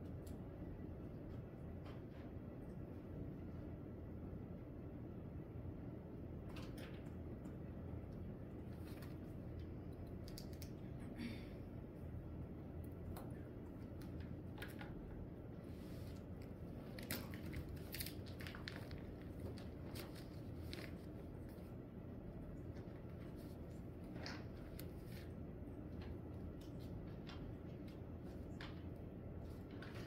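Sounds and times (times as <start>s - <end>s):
steady low hum: 0.0s - 30.0s
small clicks and rustles: 6.4s - 11.0s, 12.8s - 30.0s.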